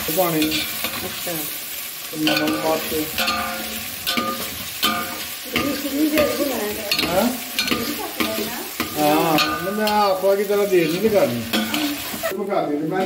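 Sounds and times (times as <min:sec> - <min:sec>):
chicken sizzling in oil: 0:00.0 - 0:13.0
metal spatula scraping pot: 0:02.2 - 0:12.3.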